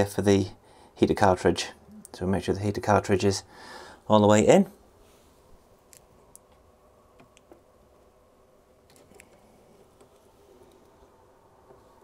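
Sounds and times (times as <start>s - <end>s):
faint clicks of small parts: 8.8s - 11.0s.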